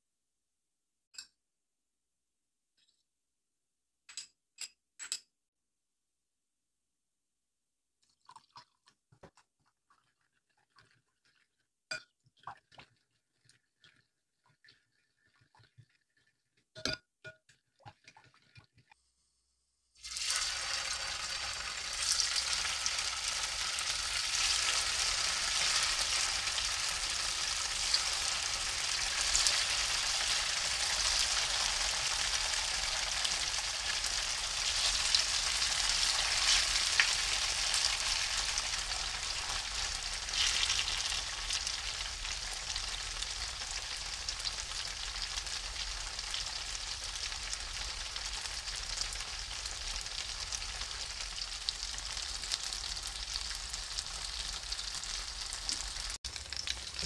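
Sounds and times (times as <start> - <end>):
tofu sizzling in hot oil: 19.9 - 57.0.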